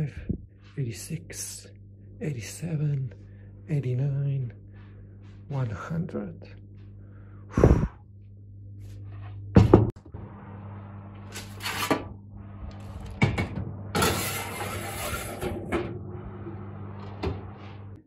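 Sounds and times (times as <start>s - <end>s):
steady low hum: 0.0s - 18.0s
metal scraping on oven rack: 11.3s - 12.0s, 14.0s - 18.0s.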